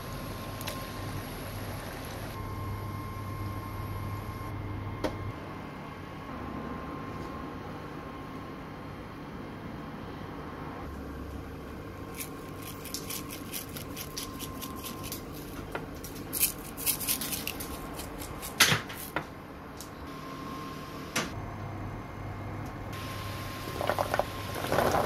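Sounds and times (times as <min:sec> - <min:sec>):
sprinkles rattling: 0:12.1 - 0:15.5.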